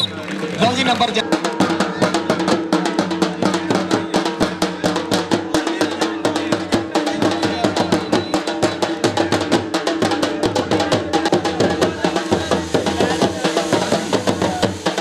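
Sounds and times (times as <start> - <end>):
drum beaten with sticks: 0.0 - 15.0.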